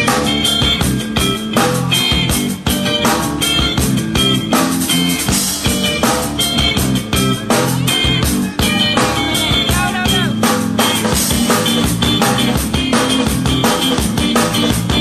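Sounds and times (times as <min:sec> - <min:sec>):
drum kit beat: 0:00.0 - 0:15.0
rock band guitar: 0:00.0 - 0:15.0.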